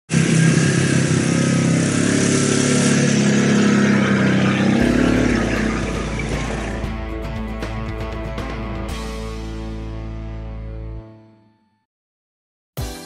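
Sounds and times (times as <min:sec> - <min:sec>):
utility vehicle engine running: 0:00.1 - 0:09.1.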